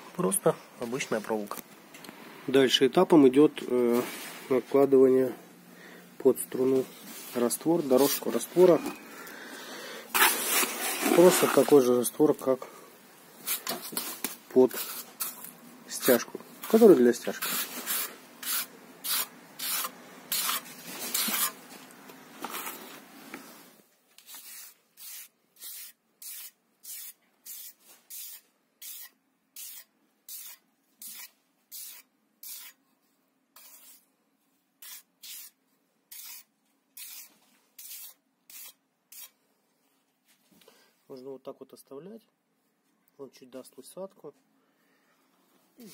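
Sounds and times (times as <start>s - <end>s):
trowel scraping mortar: 10.1s - 11.9s, 14.6s - 21.6s, 24.2s - 32.8s, 33.6s - 34.0s, 34.8s - 39.4s.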